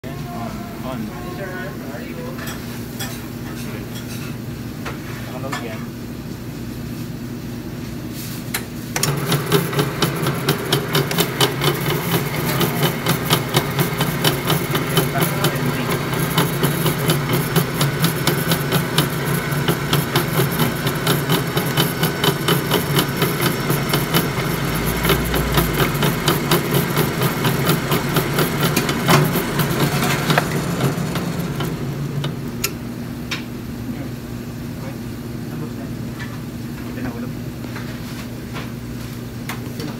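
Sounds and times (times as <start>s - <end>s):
machine hum: 9.0s - 34.6s.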